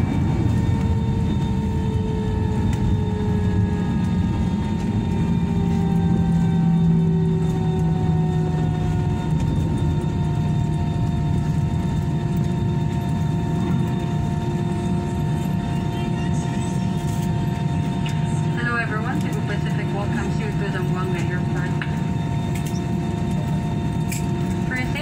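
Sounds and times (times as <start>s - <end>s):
jet engine hum and whine in cabin: 0.0s - 25.0s.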